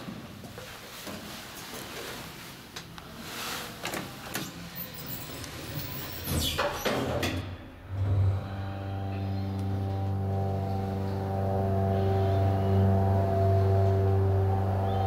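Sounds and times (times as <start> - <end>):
elevator doors sliding shut: 4.0 - 8.5.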